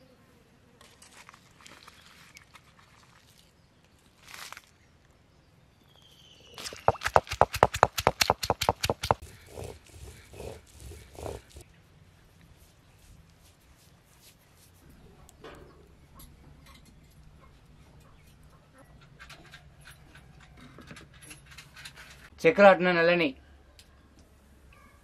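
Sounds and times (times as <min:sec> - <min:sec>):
stone roller knocking on stone: 0:06.6 - 0:11.5
faint scraping and handling: 0:09.1 - 0:15.8.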